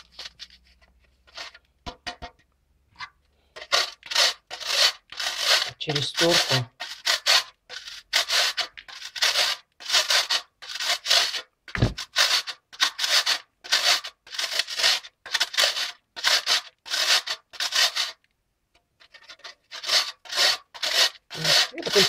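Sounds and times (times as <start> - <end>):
metal grater rasping: 3.6 - 18.2, 19.0 - 22.0
dull knock: 11.8 - 12.0.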